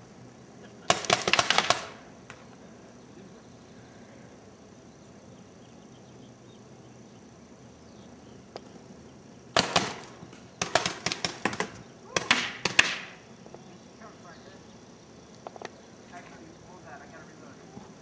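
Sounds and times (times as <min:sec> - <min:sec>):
faint outdoor background: 0:00.0 - 0:18.0.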